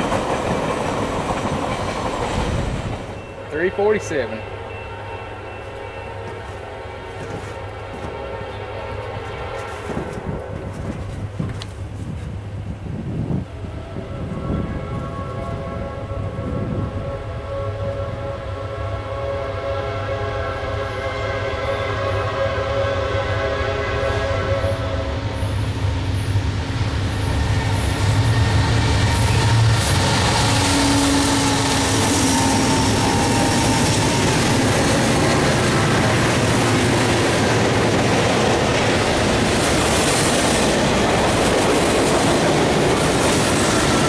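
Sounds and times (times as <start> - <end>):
freight cars rumbling on rails: 0.0 - 17.4, 24.5 - 44.0
locomotive air horn blast: 3.4 - 11.0, 13.7 - 25.7, 28.0 - 34.5
locomotive engine passing: 25.0 - 44.0.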